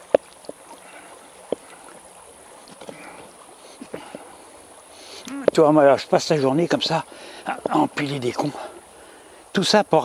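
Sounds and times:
river flowing over stones: 0.0s - 10.0s.

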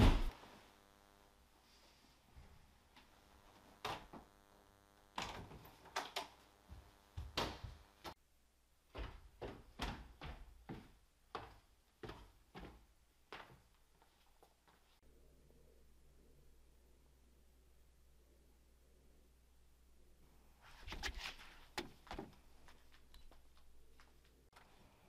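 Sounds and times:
faint steady hum: 0.0s - 9.5s, 10.9s - 25.0s
footsteps on wooden stairs: 6.7s - 7.9s, 8.9s - 14.9s.

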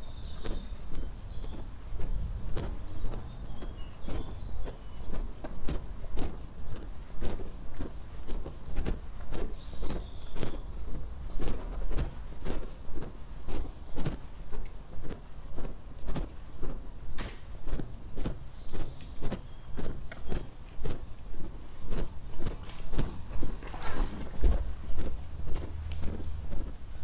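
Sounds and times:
footsteps walking: 0.0s - 27.0s.

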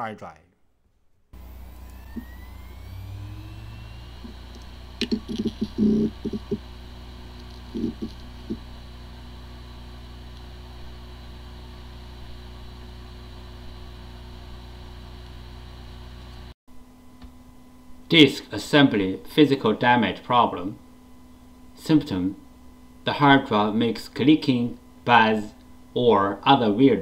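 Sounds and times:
hard disk drive whirring: 1.4s - 16.5s
rising whine: 1.4s - 16.5s.

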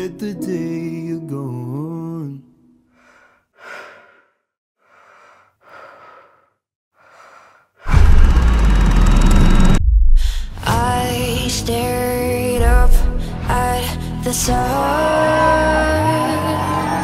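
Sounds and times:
person breathing softly: 2.9s - 7.9s, 10.2s - 10.7s.

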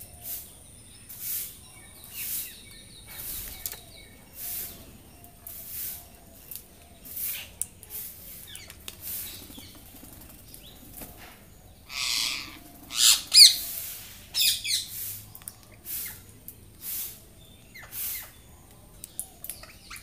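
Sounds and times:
parakeets squawking: 11.9s - 13.8s.

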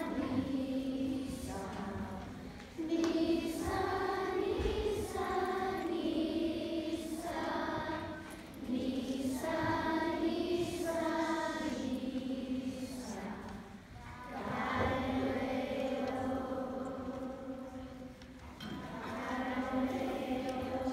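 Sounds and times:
children's choir singing: 0.0s - 20.9s.

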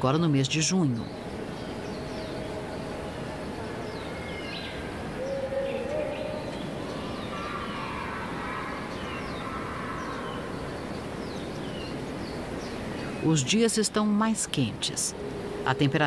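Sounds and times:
steady background hiss: 0.0s - 16.0s
low animal call: 3.6s - 10.7s.

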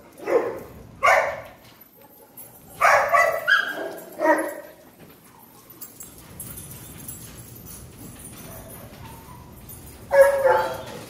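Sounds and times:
dogs barking: 0.0s - 4.8s, 8.4s - 11.0s.

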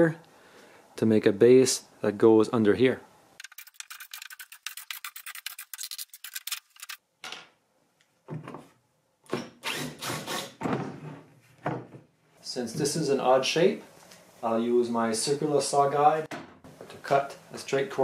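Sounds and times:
scraping and rubbing on wood: 3.4s - 7.0s.

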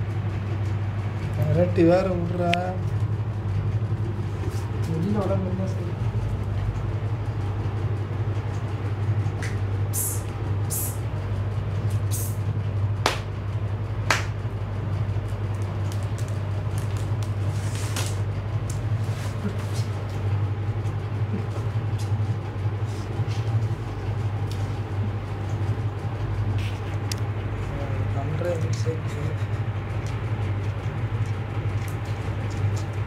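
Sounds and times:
low electrical hum: 0.0s - 33.0s.

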